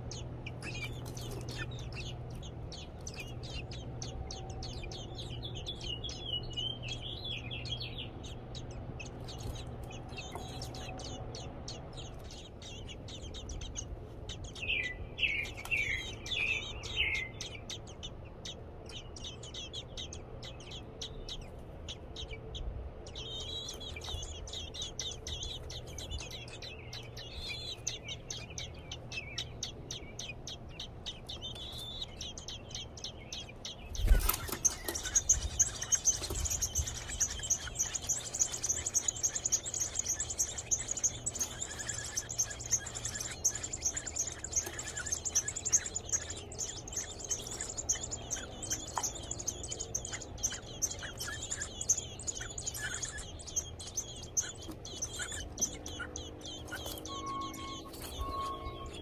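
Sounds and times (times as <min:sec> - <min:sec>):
nestlings chirping: 0:00.0 - 0:59.0
high-pitched begging calls: 0:34.0 - 0:59.0.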